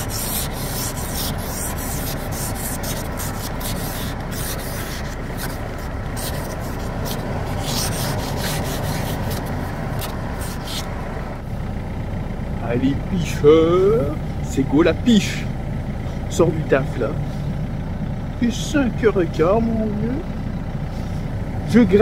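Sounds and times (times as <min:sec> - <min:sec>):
ice scraper scraping car window: 0:00.0 - 0:10.9.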